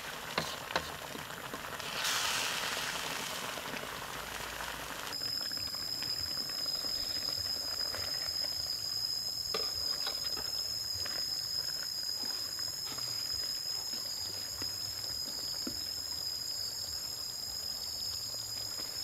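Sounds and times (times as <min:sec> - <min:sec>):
stew simmering and bubbling: 0:00.0 - 0:19.0
high-pitched insect trill: 0:05.1 - 0:19.0.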